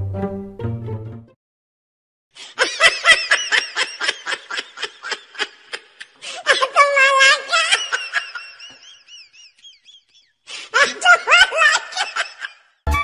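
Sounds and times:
person laughing in a high voice: 2.5 - 10.1, 10.7 - 12.6.

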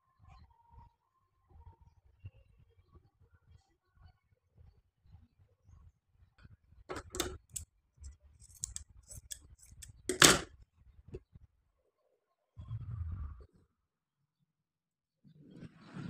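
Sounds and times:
scissors snipping cloth: 8.4 - 10.3.

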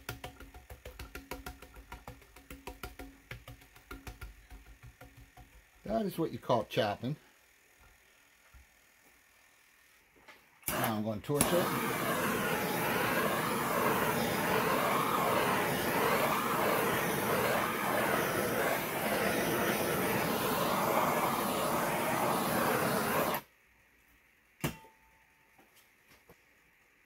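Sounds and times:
sharp click: 10.6 - 11.5
gas torch flame hissing: 10.6 - 23.5.

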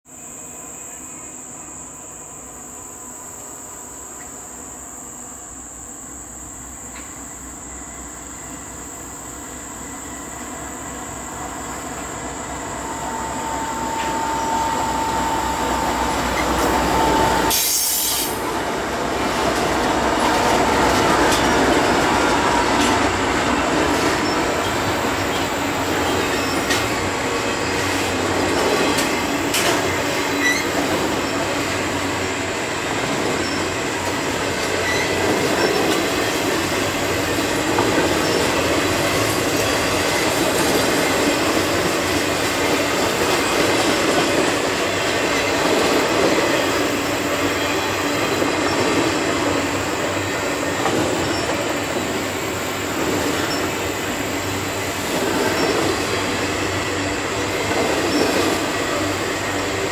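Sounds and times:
diesel locomotives with high whine: 0.1 - 59.9
train wheels on rails: 0.9 - 59.9.

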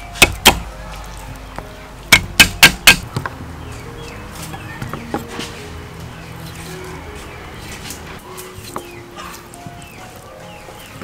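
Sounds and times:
cleaver chopping on wooden board: 0.2 - 0.7, 2.1 - 3.3.

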